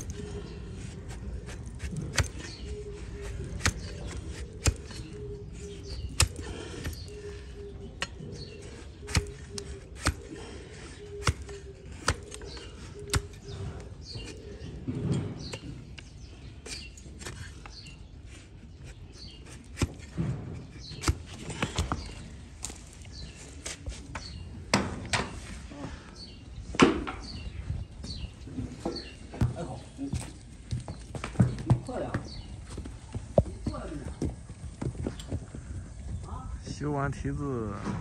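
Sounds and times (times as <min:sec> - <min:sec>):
blade cutting hoof clicks: 0:09.0 - 0:10.4, 0:11.1 - 0:13.4.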